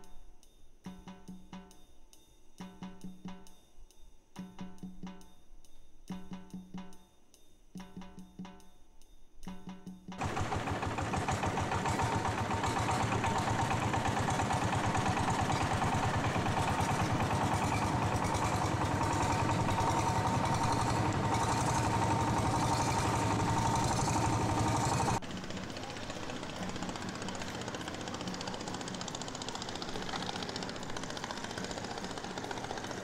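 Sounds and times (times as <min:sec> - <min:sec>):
boat engine chugging: 0:10.2 - 0:33.0.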